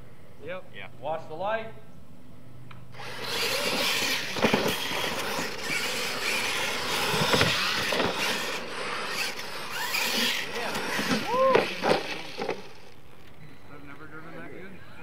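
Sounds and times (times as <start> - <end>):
electric motor whine: 3.0 - 13.1
tyres scrabbling through dirt: 3.0 - 13.4
sharp thumps: 3.1 - 12.9.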